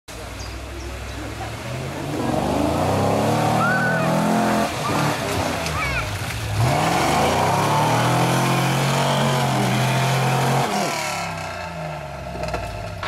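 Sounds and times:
wheels throwing mud spray: 0.2s - 13.0s
engine revving hard: 1.7s - 11.6s.

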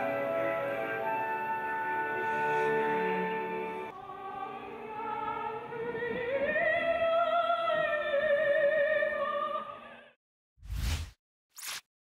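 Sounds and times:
opera singing with orchestral strings: 3.3s - 10.2s.

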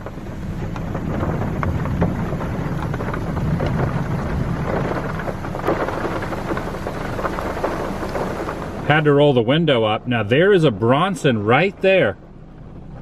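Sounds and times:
low rumble of thunder: 0.0s - 9.4s
raindrops ticking: 0.0s - 11.8s.

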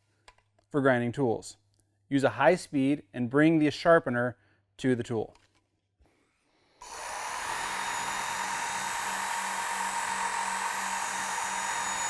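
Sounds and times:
belt sharpener grinding axe edge: 6.8s - 12.0s
motor whine: 6.8s - 12.0s.

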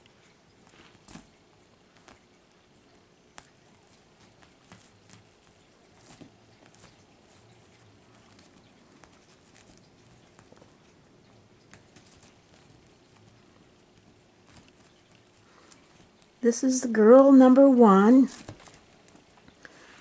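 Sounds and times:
kitten paws tapping on blanket: 0.0s - 16.4s.

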